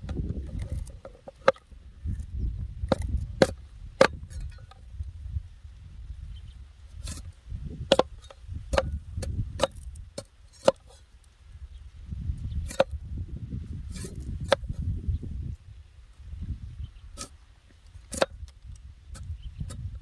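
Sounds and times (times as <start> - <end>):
cleaver chopping on wooden board: 2.9 - 4.2, 7.9 - 10.8.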